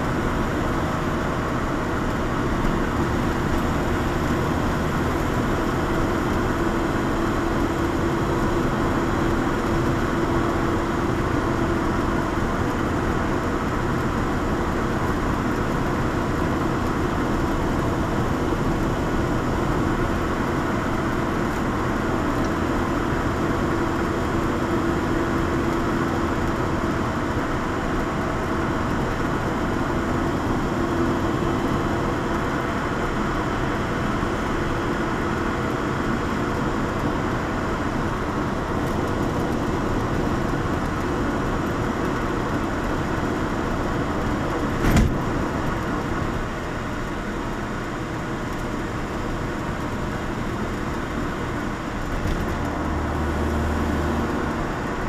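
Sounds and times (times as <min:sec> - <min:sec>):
car engine while cruising: 0:00.0 - 0:55.0
road rumble: 0:00.0 - 0:55.0
sharp thump: 0:44.8 - 0:45.2.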